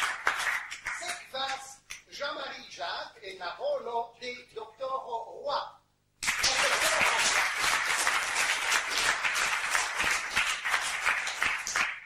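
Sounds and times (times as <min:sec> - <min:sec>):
audience applauding: 0:00.0 - 0:01.2, 0:06.2 - 0:12.0.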